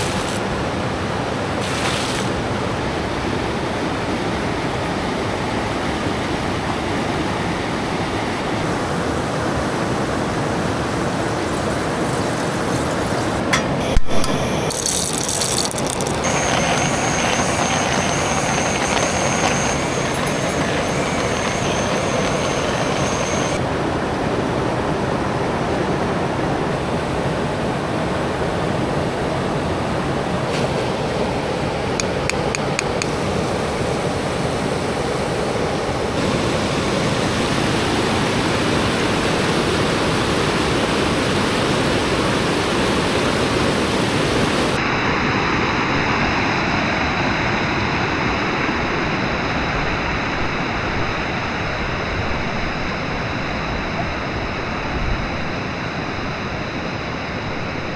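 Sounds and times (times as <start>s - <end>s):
faint high whine: 0.0s - 57.9s
river rapids rushing: 14.5s - 23.7s, 36.2s - 45.3s.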